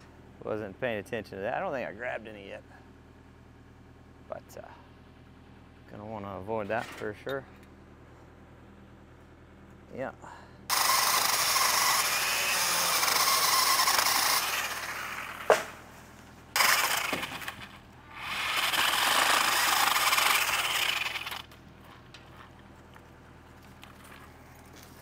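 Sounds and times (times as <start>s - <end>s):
pole saw cutting branches: 10.7s - 15.9s, 16.5s - 21.5s
sharp crack: 13.8s - 15.9s, 16.6s - 17.8s.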